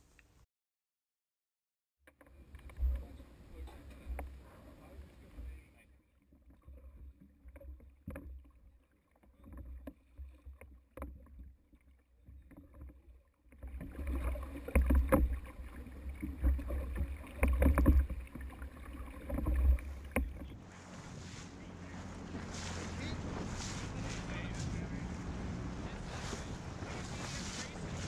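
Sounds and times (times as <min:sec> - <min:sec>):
water: 0:02.0 - 0:28.0
oars knocking and splashing: 0:02.1 - 0:28.0
wind on the microphone: 0:19.5 - 0:28.0.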